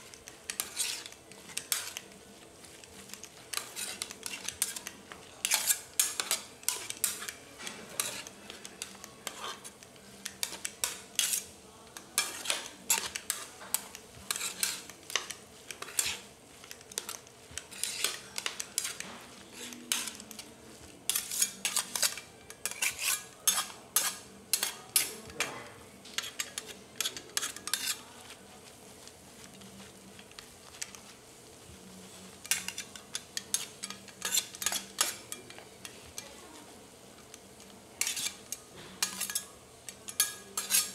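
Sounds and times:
metal spatulas scraping on griddle: 0:00.0 - 0:31.2, 0:31.8 - 0:36.4, 0:37.1 - 0:40.9.

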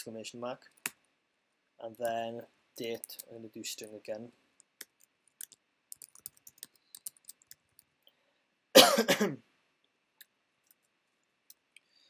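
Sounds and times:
computer keyboard typing: 0:04.7 - 0:07.9
person coughing: 0:08.8 - 0:09.4.

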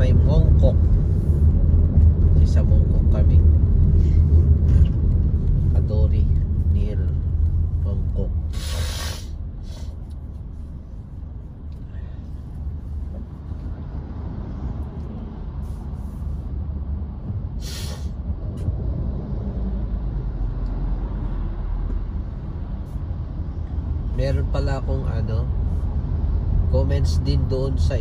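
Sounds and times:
car engine and tyres rumbling: 0:00.0 - 0:28.0
brief hisses: 0:08.5 - 0:10.0, 0:17.6 - 0:18.2.

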